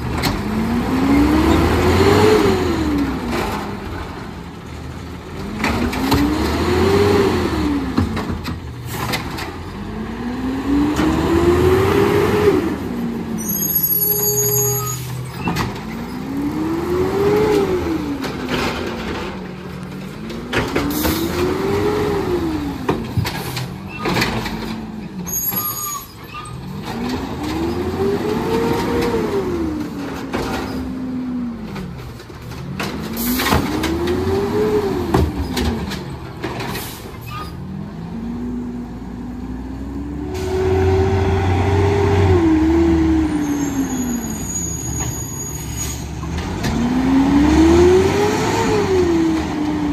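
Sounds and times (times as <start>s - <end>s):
truck engine revving: 0.0s - 14.4s, 15.0s - 24.7s, 26.6s - 36.6s, 37.6s - 49.9s
metal arm and cart clanking: 13.2s - 37.7s.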